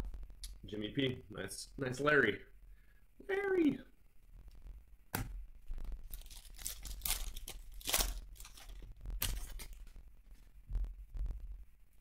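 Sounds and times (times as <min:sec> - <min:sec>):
plastic wrapper crinkling: 0:05.7 - 0:10.5.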